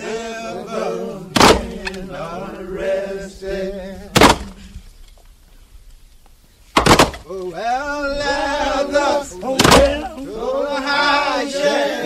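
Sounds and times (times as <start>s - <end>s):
chanted singing voice: 0.0s - 4.9s, 7.3s - 12.0s.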